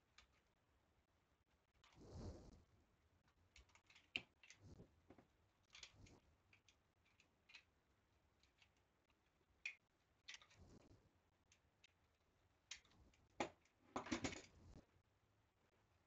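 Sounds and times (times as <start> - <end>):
clicks and scrapes of wooden parts: 1.8 - 2.0, 3.6 - 7.8, 8.4 - 12.0.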